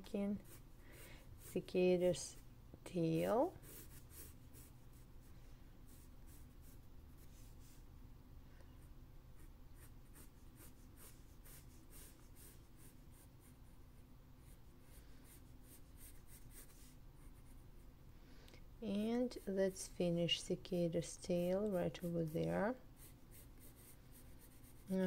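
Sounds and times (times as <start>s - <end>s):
low room hum: 0.0s - 25.0s
pencil scratching on paper: 0.2s - 0.7s, 1.4s - 2.4s, 3.2s - 5.1s, 5.9s - 7.9s, 9.4s - 13.8s, 14.4s - 17.6s, 19.0s - 25.0s.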